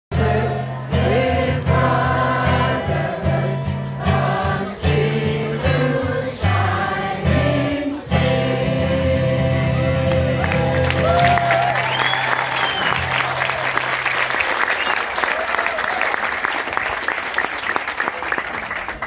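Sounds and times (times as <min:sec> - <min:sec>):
choir singing: 0:00.1 - 0:10.4
deep bass notes: 0:00.1 - 0:10.9.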